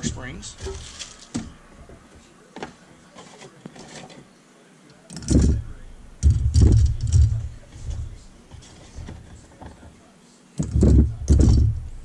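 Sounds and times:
rustling: 0.0 - 4.3, 5.3 - 10.0
loud dull thumps: 5.2 - 9.2, 10.6 - 12.0.

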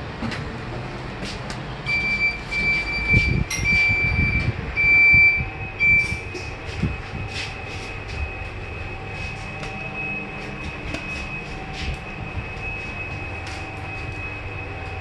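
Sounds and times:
lift car hum: 0.0 - 15.0
high electronic beeps: 1.9 - 7.0.

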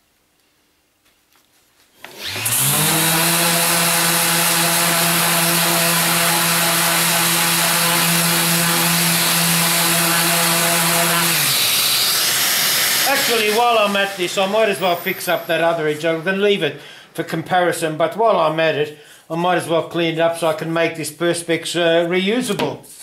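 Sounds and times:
orbital sander sanding plastic: 2.0 - 16.7.

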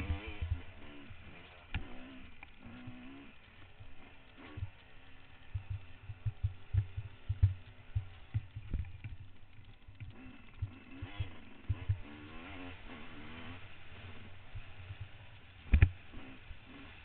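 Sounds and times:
motorbike engine running: 0.0 - 17.0
low thumps and knocks: 5.5 - 10.8.

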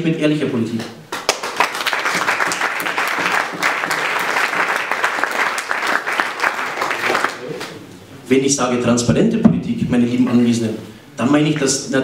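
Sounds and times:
audience applauding: 1.2 - 7.7.

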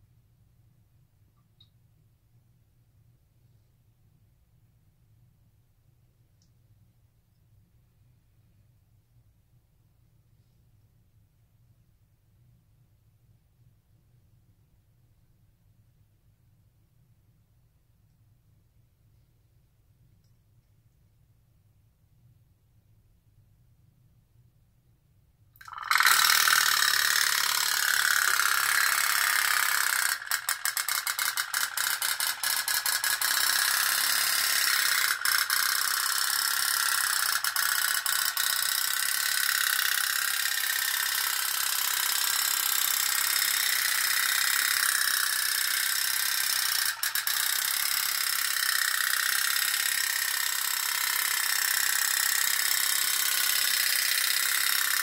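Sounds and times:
pop-pop boat boiler sputtering: 25.6 - 39.3.

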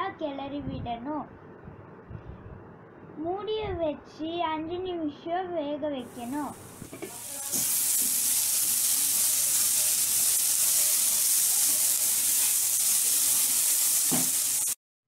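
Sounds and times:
vegetables sizzling in a pan: 6.1 - 14.8.

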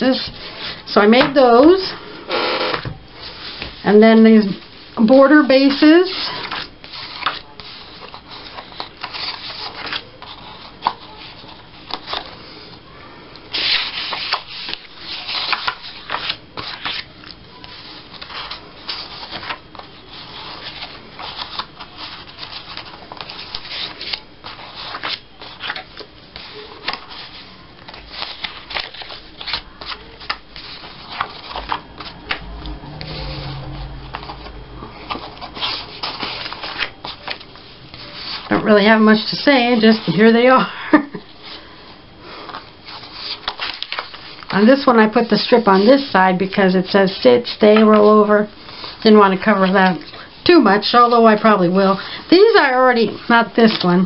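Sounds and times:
paper rustling and flicking: 5.6 - 12.4, 13.5 - 38.6, 42.5 - 46.1.

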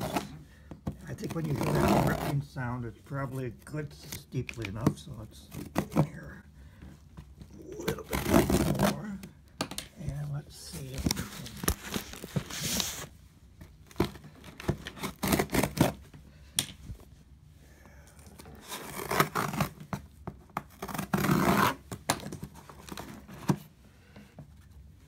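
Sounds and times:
scissors ripping packing tape: 13.9 - 16.0.

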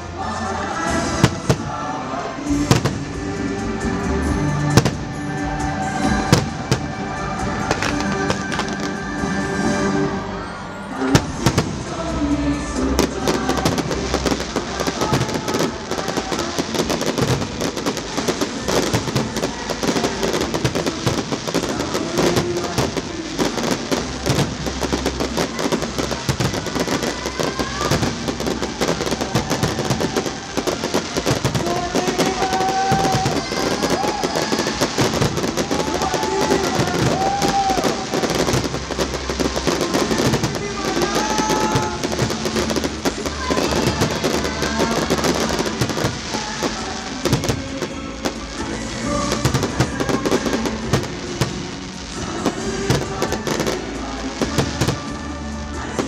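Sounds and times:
fireworks crackling and banging: 0.0 - 56.0
music: 0.0 - 56.0.

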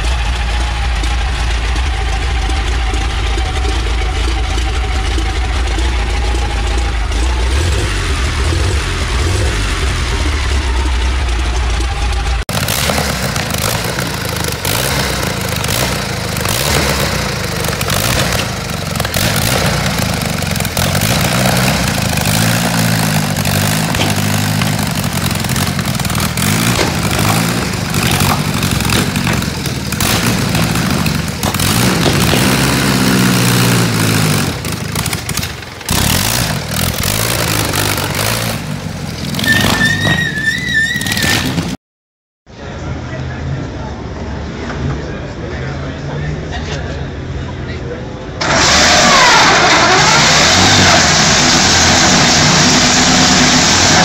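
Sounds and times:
aero engine deep steady note: 0.0 - 39.3
aero engine revving: 0.0 - 41.8, 48.2 - 54.0.

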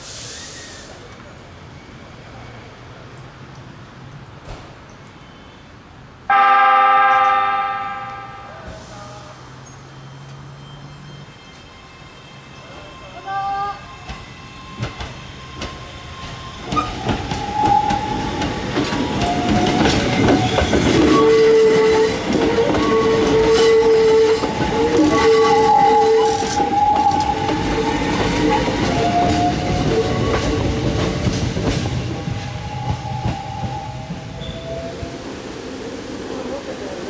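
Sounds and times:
electric railcar passing: 0.0 - 37.0
high wavering wheel squeal: 7.1 - 13.6, 19.1 - 30.8, 32.0 - 35.3
wheels clicking over rail joints: 14.8 - 33.2.

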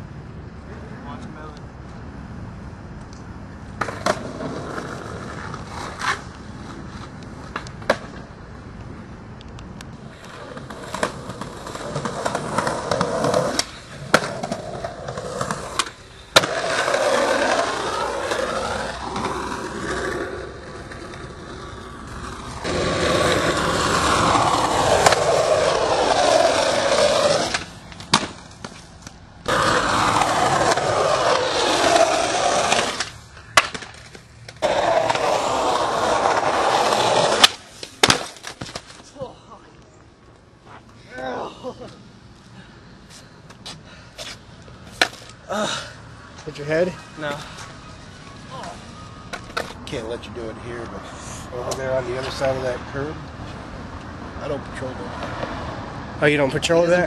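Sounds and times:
skateboard wheels rolling on concrete: 0.0 - 57.0
skateboard clacks: 10.0 - 39.0.

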